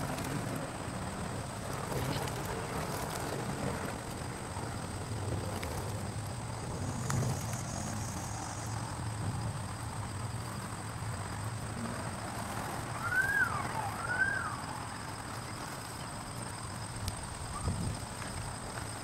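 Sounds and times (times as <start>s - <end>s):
bird whistling: 13.0s - 14.8s.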